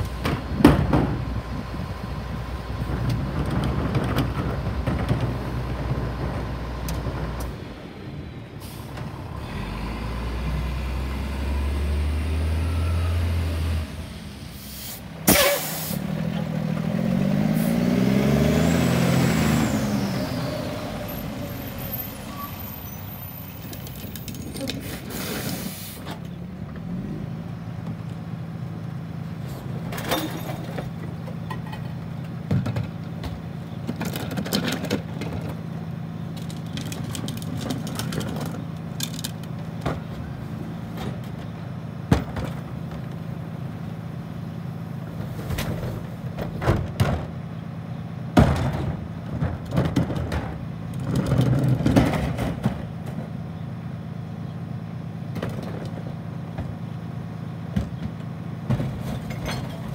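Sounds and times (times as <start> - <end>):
diesel engine revving: 1.2 - 24.2
air brake hiss: 14.4 - 16.0, 24.8 - 26.1
garbage packer cycling: 29.6 - 59.9.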